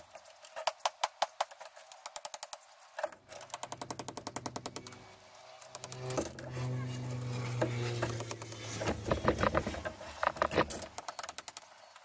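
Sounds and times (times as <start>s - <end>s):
low mechanical hum: 3.2s - 11.0s.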